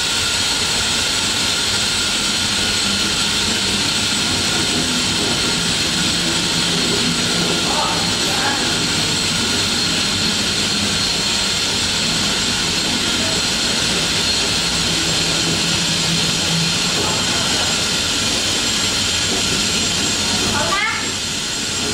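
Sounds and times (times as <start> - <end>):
low machinery hum: 0.0 - 21.9
machinery hiss: 0.0 - 21.9.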